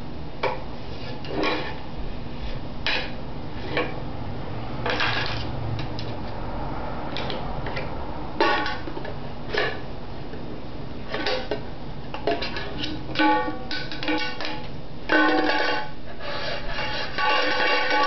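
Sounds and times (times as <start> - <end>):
can clanking and rattling: 8.4 - 9.8, 11.1 - 18.0.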